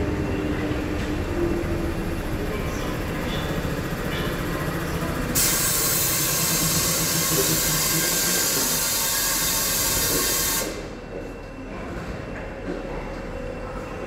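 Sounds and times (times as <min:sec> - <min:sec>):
low mechanical rumble: 0:00.0 - 0:08.0.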